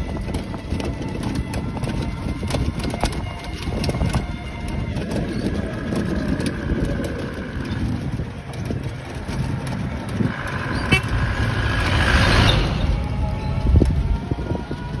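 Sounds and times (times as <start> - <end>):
wind and road rumble: 0.0 - 15.0
truck passing close by: 5.0 - 15.0
horn long held tone: 10.5 - 14.9.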